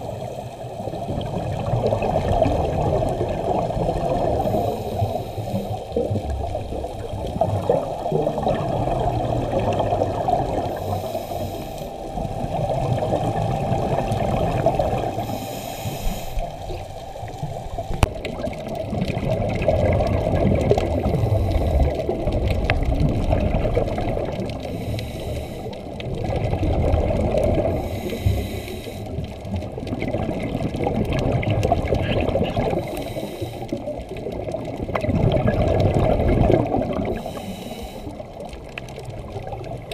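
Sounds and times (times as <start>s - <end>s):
underwater regulator bubbles: 0.0s - 39.9s
regulator hiss: 10.7s - 18.1s, 27.8s - 29.1s, 37.2s - 38.2s.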